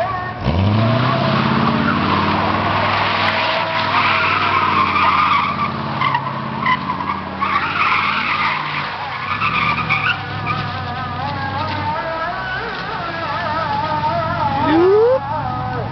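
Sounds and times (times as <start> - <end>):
tyres screeching: 0.0 - 15.3
car engine drone: 0.0 - 15.9.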